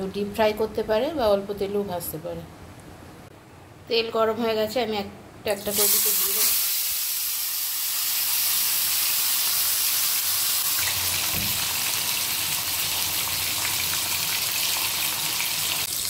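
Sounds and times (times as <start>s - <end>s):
fish sizzling in hot oil: 5.7s - 16.0s.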